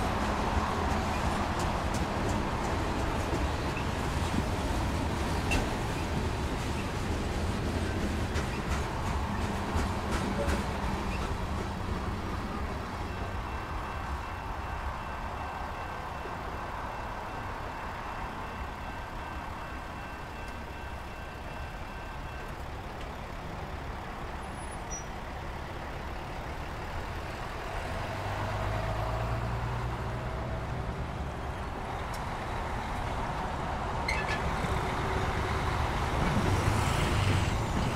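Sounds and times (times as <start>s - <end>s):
wheels clicking on rails: 0.0s - 12.0s
freight train rumbling past: 0.0s - 37.9s.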